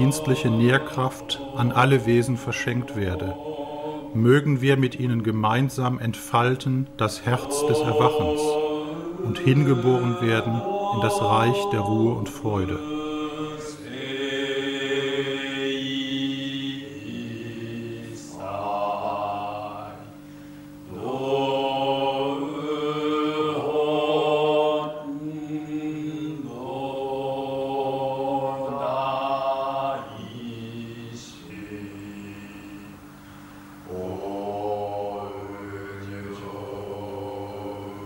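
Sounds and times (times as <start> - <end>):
men chanting on held notes: 0.0 - 5.2, 6.7 - 20.2.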